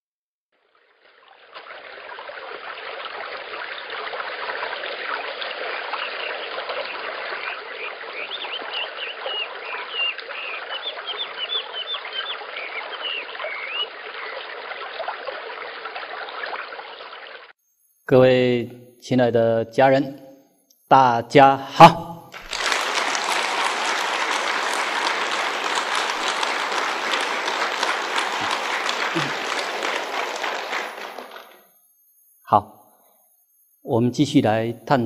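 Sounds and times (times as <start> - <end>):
rushing water: 0.8 - 17.5, 22.4 - 31.4
small birds chirping: 5.6 - 14.6.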